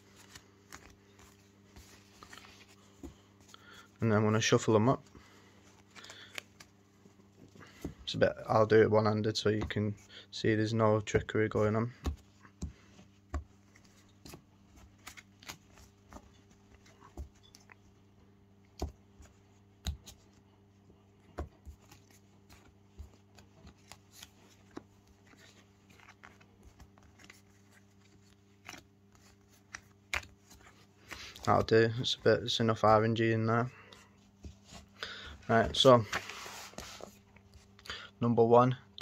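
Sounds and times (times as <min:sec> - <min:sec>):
cards being shuffled: 0:00.0 - 0:04.5, 0:05.1 - 0:08.5, 0:11.6 - 0:17.9, 0:21.2 - 0:33.0, 0:35.5 - 0:37.8
faint steady hum: 0:00.0 - 0:39.0.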